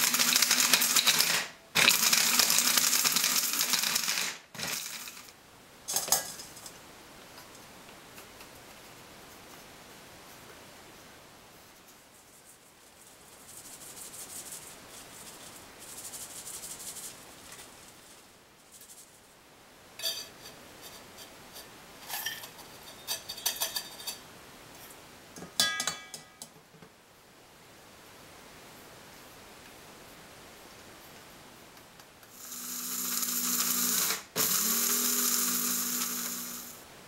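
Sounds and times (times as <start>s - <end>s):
metallic clinks of strainer and bowls: 25.6s - 26.4s.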